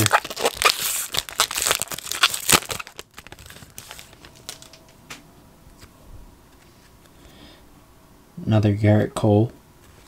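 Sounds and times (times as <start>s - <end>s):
foil wrapper crinkling: 0.0s - 4.8s
cards being handled: 0.0s - 5.2s.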